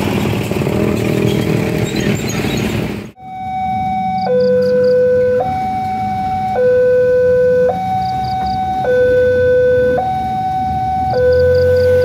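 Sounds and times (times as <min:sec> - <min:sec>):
low rumble of waiting traffic: 0:00.0 - 0:12.0
level crossing two-tone alarm: 0:03.2 - 0:12.0.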